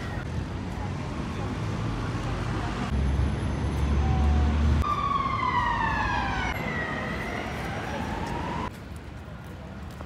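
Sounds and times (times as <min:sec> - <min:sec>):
siren wailing: 0:04.0 - 0:08.7.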